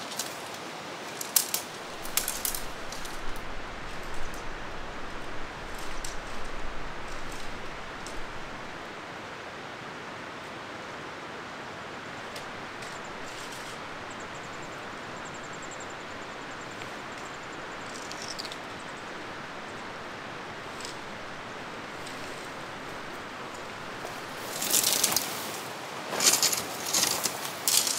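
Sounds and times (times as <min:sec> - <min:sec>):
stream water rushing: 0:00.0 - 0:27.9
small birds chirping: 0:12.4 - 0:25.2.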